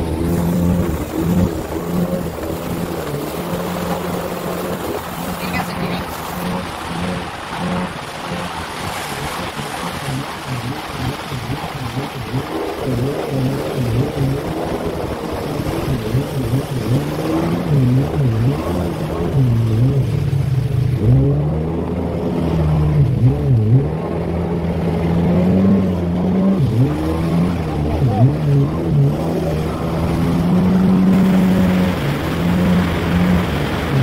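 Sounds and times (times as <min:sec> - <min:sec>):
jet ski engine running: 0:00.0 - 0:34.0
rushing water and spray: 0:00.0 - 0:34.0.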